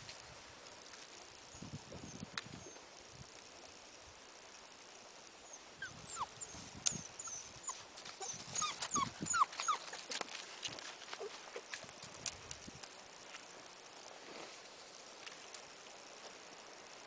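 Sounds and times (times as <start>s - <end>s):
puppies yelping and whimpering: 5.8s - 10.2s
paws scrabbling on ice: 8.0s - 12.6s.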